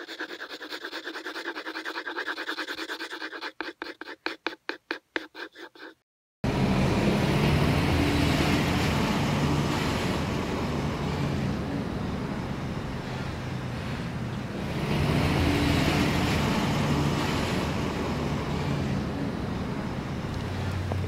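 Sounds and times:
road traffic rumbling past: 6.4s - 21.0s.

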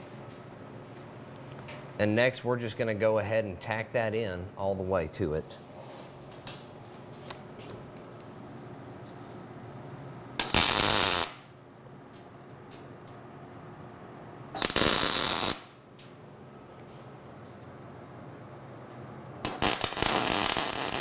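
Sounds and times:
welding arc hissing: 10.4s - 11.4s, 14.6s - 15.7s, 19.4s - 21.0s.

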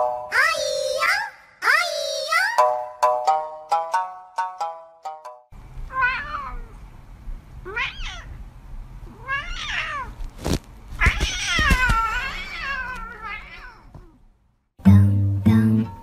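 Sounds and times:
cat meowing: 5.9s - 6.8s, 7.6s - 8.4s, 9.1s - 10.2s, 11.0s - 14.2s.

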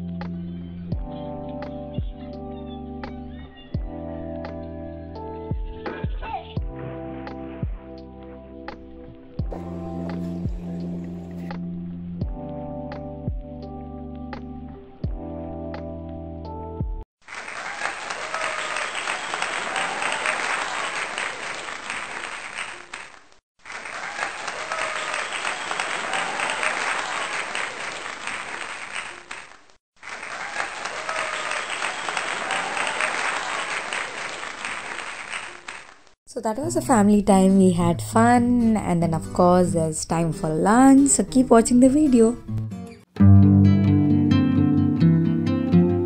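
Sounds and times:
background music: 0.0s - 17.0s, 36.3s - 46.0s
group clapping and cheering: 17.2s - 36.2s.

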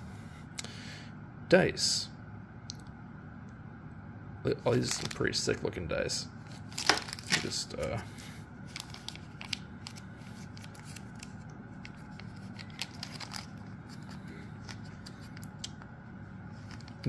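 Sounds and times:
plastic bag of dice crinkling: 4.7s - 5.3s, 6.7s - 7.6s, 8.7s - 11.3s, 11.9s - 14.9s.

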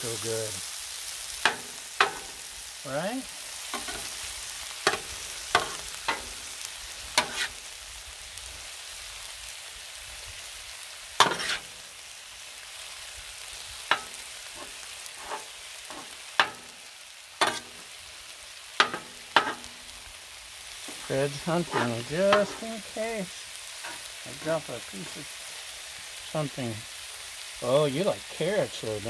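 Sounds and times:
meat sizzling on griddle: 0.0s - 29.0s
metal spatula clacking and scraping: 1.4s - 2.4s, 3.8s - 4.2s, 4.8s - 6.4s, 7.2s - 7.6s, 11.2s - 11.7s, 13.9s - 16.8s, 17.4s - 17.8s, 18.8s - 19.8s, 21.6s - 22.6s, 23.8s - 24.1s.

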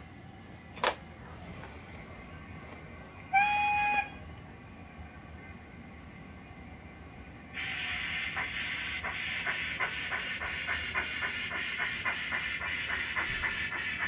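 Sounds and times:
steam locomotive exhaust chuffs: 7.5s - 14.0s
steam hiss: 7.6s - 14.0s.

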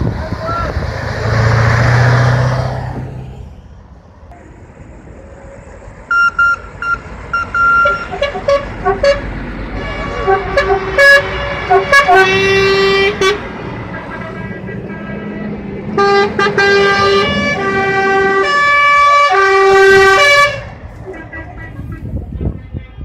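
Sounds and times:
lorry engine passing: 0.0s - 22.3s
truck horns tooting: 6.0s - 22.8s.

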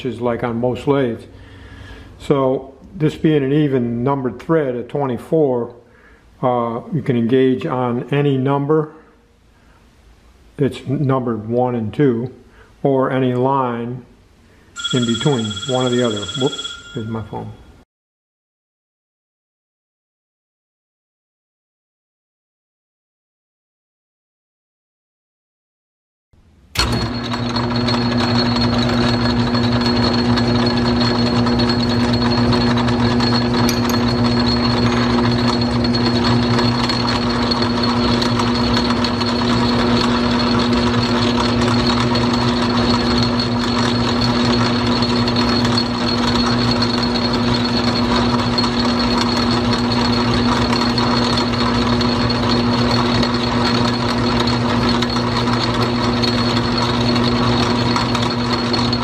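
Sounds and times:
metal lathe humming and whining: 26.8s - 59.0s.

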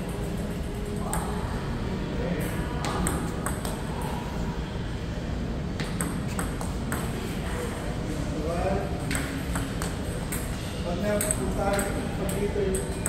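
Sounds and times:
table tennis ball pinging: 0.0s - 1.5s, 2.8s - 4.1s, 5.8s - 7.3s, 9.0s - 13.0s
low hall hum: 0.0s - 13.0s.

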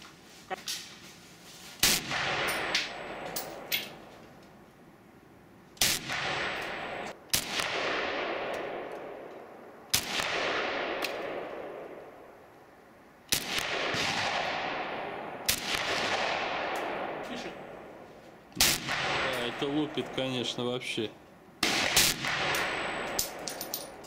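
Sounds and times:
rifle shots with long echo: 1.8s - 4.1s, 5.8s - 12.4s, 13.3s - 18.0s, 18.6s - 20.6s, 21.6s - 24.0s.

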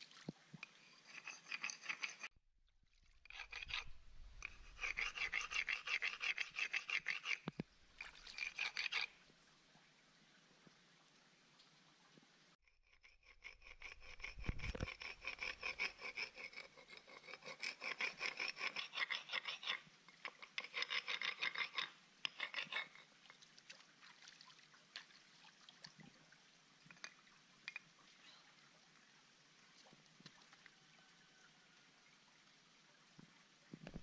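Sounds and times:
stone grinding against rock: 0.7s - 2.3s, 3.3s - 7.6s, 8.3s - 9.2s, 13.2s - 23.1s.

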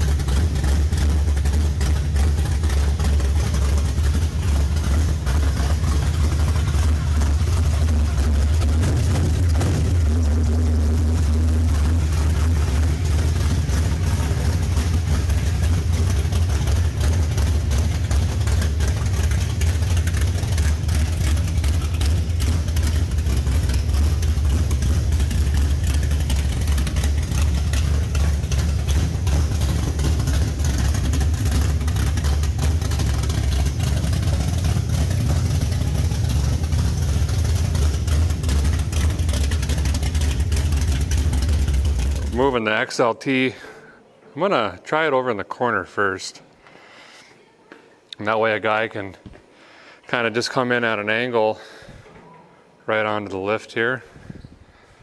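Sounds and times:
car engine idling unevenly: 0.0s - 44.0s.

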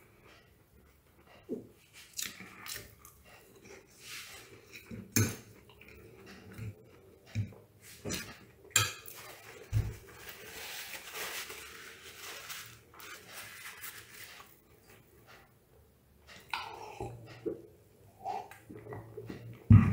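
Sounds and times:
fork clinking on a ceramic plate: 8.8s - 9.2s.

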